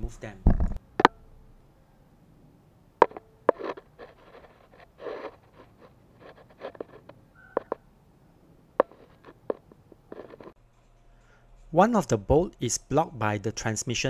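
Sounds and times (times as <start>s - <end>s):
tools clicking and tapping: 3.0s - 4.5s, 5.5s - 7.8s, 8.8s - 10.6s
tool scraping: 3.0s - 7.8s, 8.8s - 10.6s.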